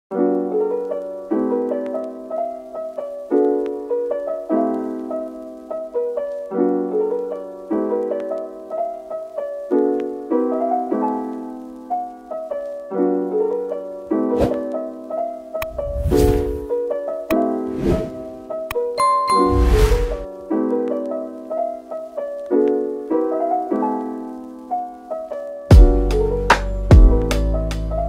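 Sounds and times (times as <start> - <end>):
piano chords: 0.1 - 28.0.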